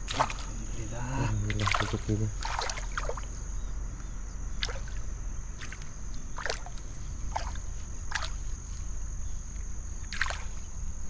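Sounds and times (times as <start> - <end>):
water splashing: 0.0 - 0.7, 1.3 - 3.3, 4.6 - 8.4, 10.1 - 10.6.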